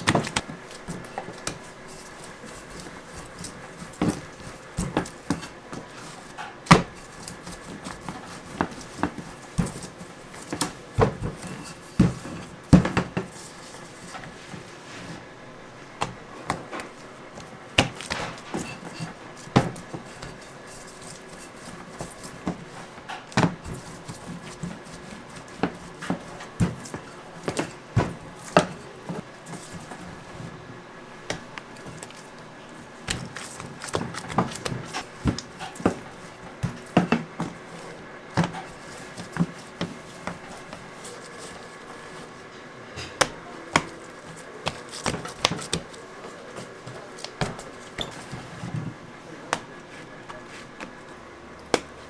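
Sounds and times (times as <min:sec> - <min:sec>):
rolling pin thumping dough on steel: 0:02.5 - 0:13.3, 0:17.7 - 0:29.2.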